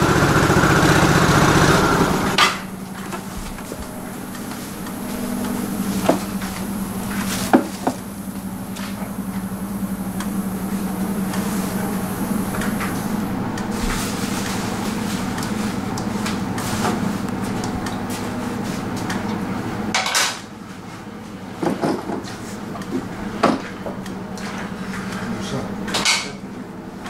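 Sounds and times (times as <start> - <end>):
low hum: 0.0 - 16.4.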